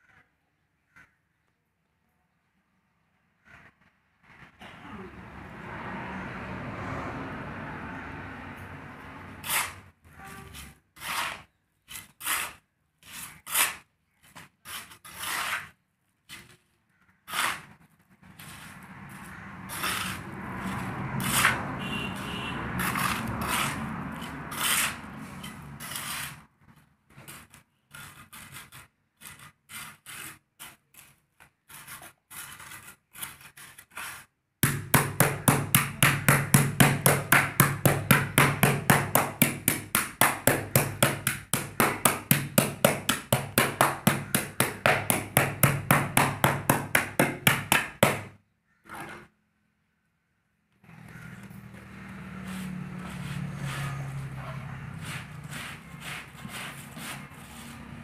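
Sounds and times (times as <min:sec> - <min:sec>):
trowel scraping concrete mix: 0:09.0 - 0:49.3, 0:52.2 - 0:58.0.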